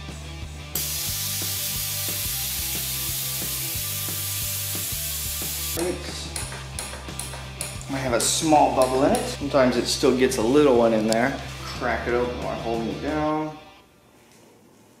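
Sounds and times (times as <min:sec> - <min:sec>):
music with steady beat: 0:00.0 - 0:13.7
compressed air hissing: 0:00.7 - 0:05.8.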